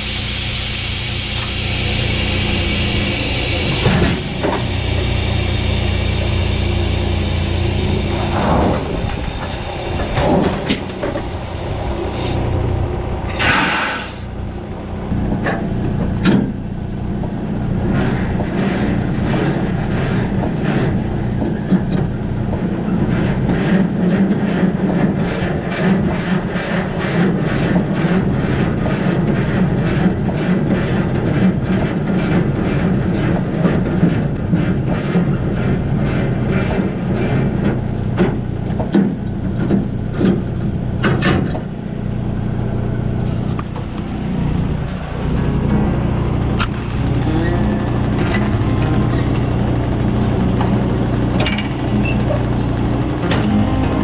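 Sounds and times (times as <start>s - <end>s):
diesel engine idling: 0.0s - 23.2s, 41.7s - 54.0s.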